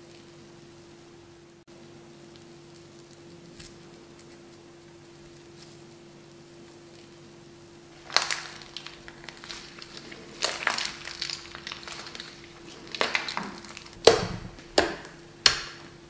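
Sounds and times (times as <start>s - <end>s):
faint steady hum: 0.0s - 16.0s
slime squelching: 7.9s - 15.9s.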